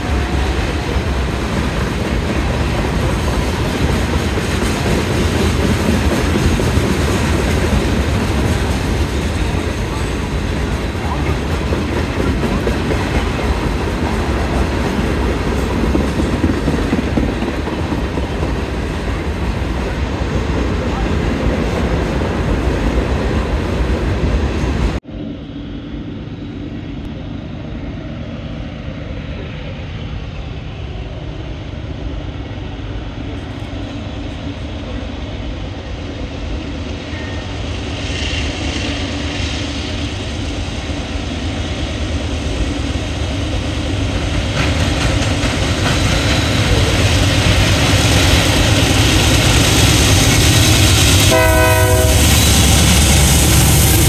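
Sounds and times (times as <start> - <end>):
diesel locomotive rumble: 0.0 - 54.0
train horn: 51.2 - 53.8.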